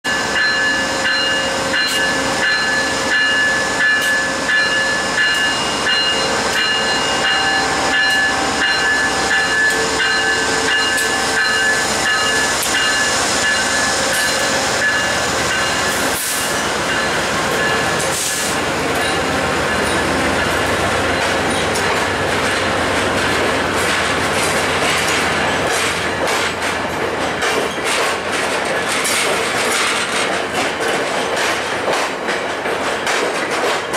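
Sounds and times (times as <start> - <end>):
locomotive high whine: 0.1 - 26.7
wheels clicking over rail joints: 21.2 - 33.9.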